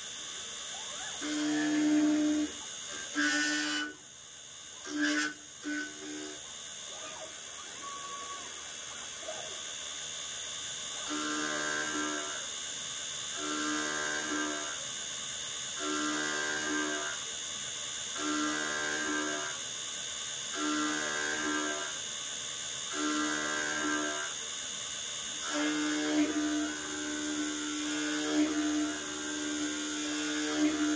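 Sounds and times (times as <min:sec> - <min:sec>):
lathe spindle high whine: 0:00.0 - 0:10.2.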